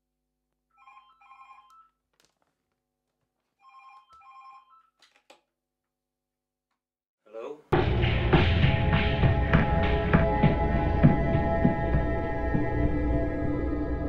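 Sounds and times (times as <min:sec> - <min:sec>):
phone ringing: 0:00.7 - 0:02.1, 0:03.6 - 0:05.0.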